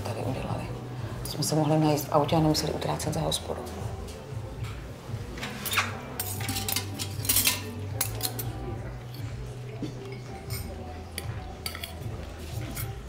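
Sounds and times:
cutlery clinking on plates: 0:05.4 - 0:13.0.

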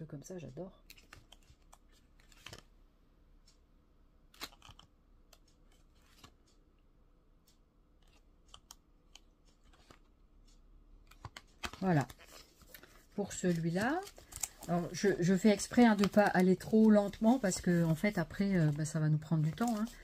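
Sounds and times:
paper sheets turning: 0:11.2 - 0:20.0.

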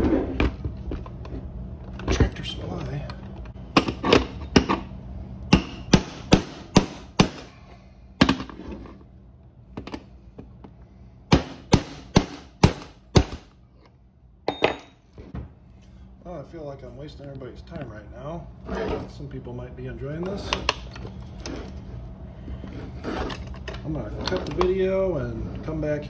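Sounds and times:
hammer striking metal: 0:05.5 - 0:07.5.

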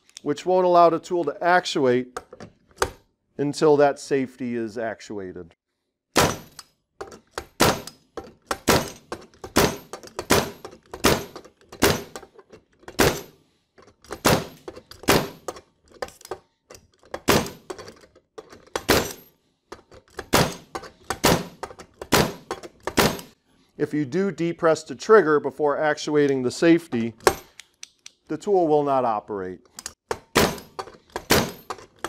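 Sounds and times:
pneumatic rivet driver strikes: 0:06.2 - 0:12.2, 0:20.2 - 0:23.3, 0:29.8 - 0:31.8.

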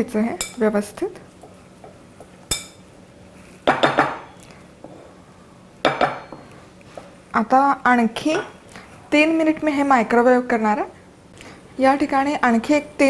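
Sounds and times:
wooden spoon knocking glass bowl: 0:05.8 - 0:06.5.

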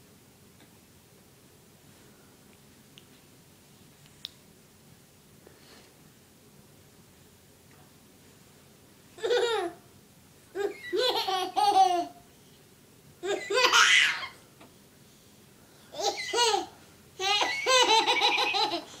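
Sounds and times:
baby laughing: 0:09.2 - 0:09.8, 0:10.5 - 0:12.2, 0:13.2 - 0:14.4, 0:16.0 - 0:19.0.

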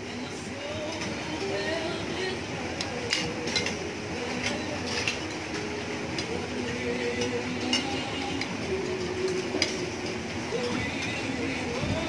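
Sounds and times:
faint background music: 0:00.0 - 0:12.0
cutlery clinking on plates: 0:03.1 - 0:03.8, 0:04.4 - 0:05.4.

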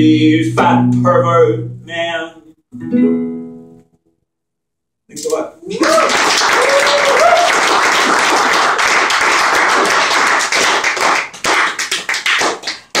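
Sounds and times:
audience clapping: 0:05.7 - 0:13.0.

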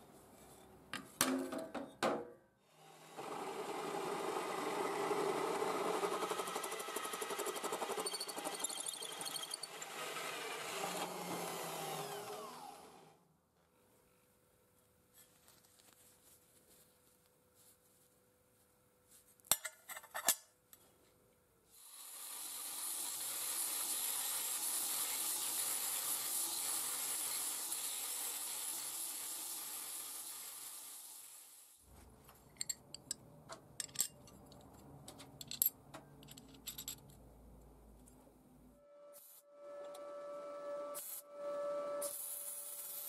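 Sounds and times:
belt grinder grinding steel: 0:03.1 - 0:13.0, 0:22.1 - 0:30.1
metal parts clinking: 0:33.8 - 0:37.2.

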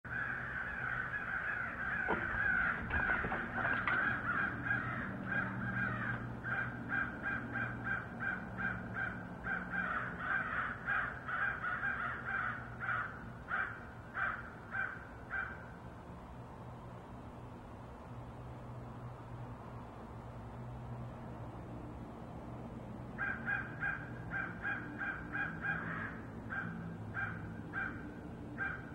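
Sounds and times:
crows cawing: 0:00.1 - 0:15.8, 0:23.1 - 0:28.9.

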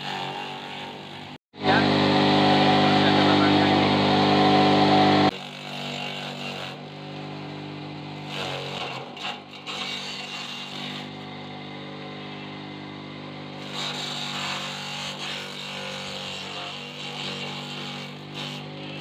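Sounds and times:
electric chopper motor hum: 0:00.1 - 0:19.0
leaves being shredded: 0:13.6 - 0:19.0.

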